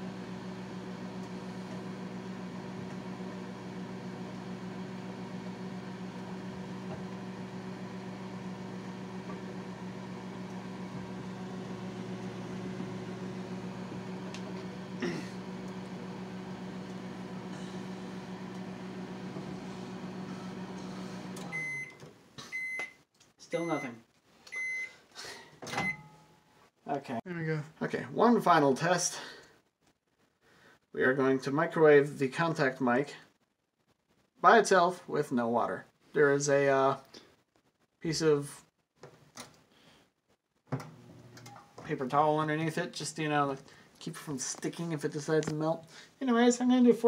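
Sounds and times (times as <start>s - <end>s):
microwave oven humming: 0.0s - 22.0s.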